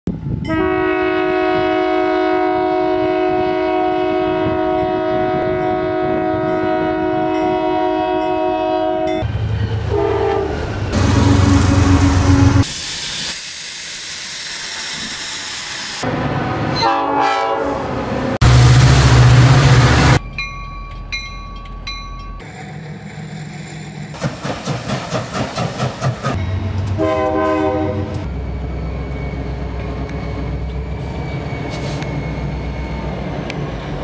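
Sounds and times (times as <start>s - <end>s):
rail noise: 0.1s - 34.0s
locomotive air horn: 0.5s - 9.2s, 9.9s - 12.7s, 16.8s - 17.8s, 27.0s - 28.3s
short horn blasts: 0.5s - 9.2s, 16.8s - 17.8s, 27.0s - 28.3s.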